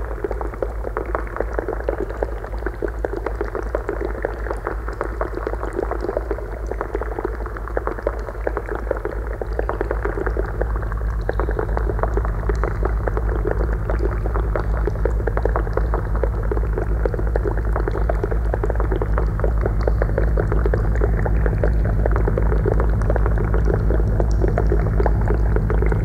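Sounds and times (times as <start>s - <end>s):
water crackling and bubbling: 0.0s - 26.0s
steady low drone: 10.5s - 26.0s.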